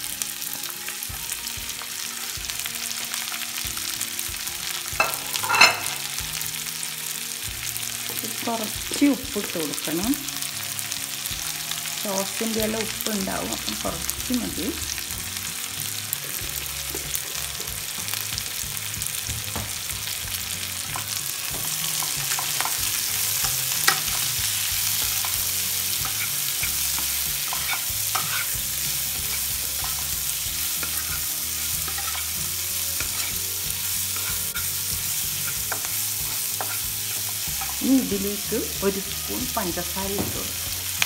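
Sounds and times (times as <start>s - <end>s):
vegetables sizzling in hot oil: 0.0s - 41.0s
spatula scraping pan: 20.8s - 37.8s
spatula tapping pan: 35.4s - 37.8s.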